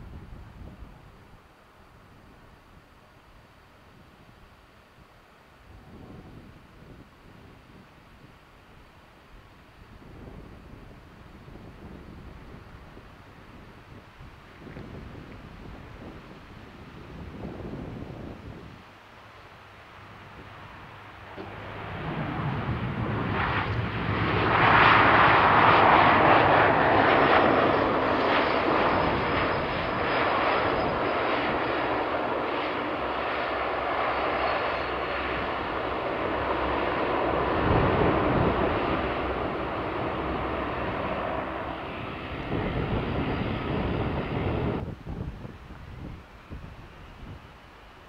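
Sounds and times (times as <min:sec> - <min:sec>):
turboprop engines drone: 0:19.4 - 0:48.0.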